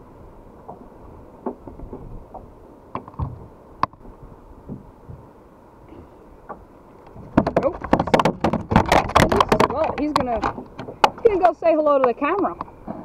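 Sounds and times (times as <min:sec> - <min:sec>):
handling knocks and clicks: 0:06.5 - 0:12.7.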